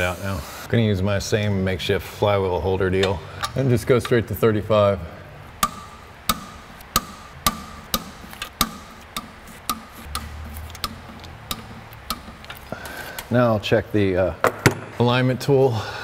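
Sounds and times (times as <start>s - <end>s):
torque wrench clicking: 5.5s - 13.3s.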